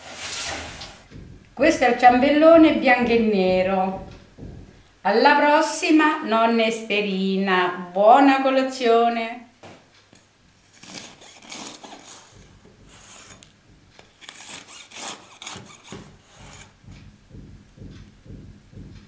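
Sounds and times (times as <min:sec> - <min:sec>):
soft low thumps: 0:00.8 - 0:05.6, 0:13.6 - 0:14.0, 0:16.0 - 0:19.0
knife sawing through cake: 0:10.6 - 0:13.4, 0:14.0 - 0:16.8
blade scraping wooden board: 0:10.6 - 0:16.8.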